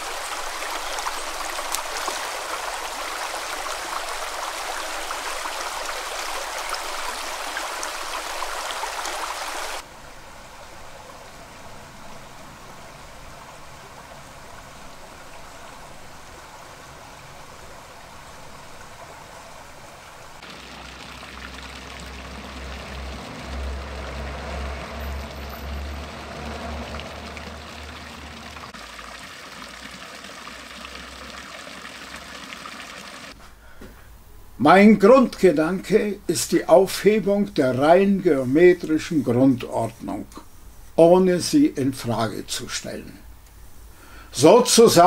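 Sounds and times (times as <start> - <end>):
brook running over pebbles: 0.0 - 33.4
fountain jets splashing into basin: 0.0 - 33.4.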